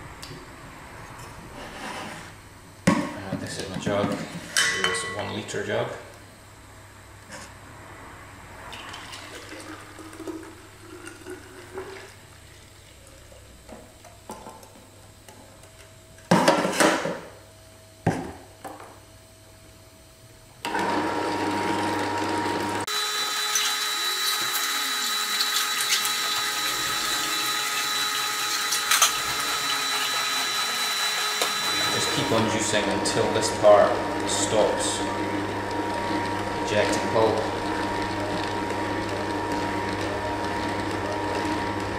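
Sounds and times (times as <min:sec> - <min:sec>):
juicer grinding: 0:08.6 - 0:13.6, 0:20.6 - 0:41.9.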